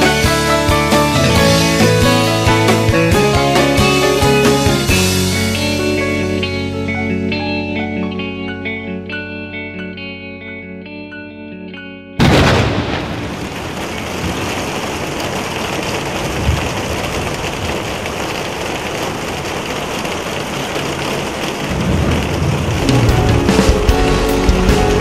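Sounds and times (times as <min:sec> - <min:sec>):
thunder rumbling: 0:00.0 - 0:05.1, 0:12.2 - 0:25.0
heavy rain splashing: 0:00.0 - 0:06.4, 0:12.2 - 0:25.0.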